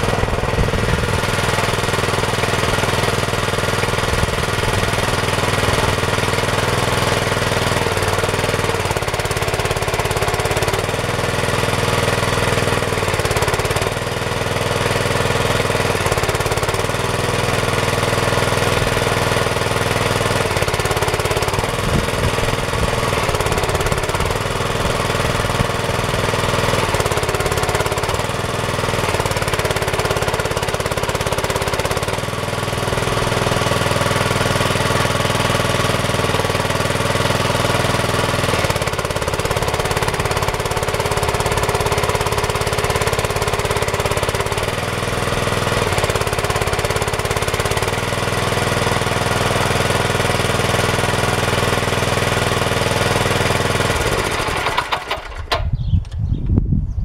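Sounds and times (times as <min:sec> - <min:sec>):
small engine running: 0:00.0 - 0:56.2.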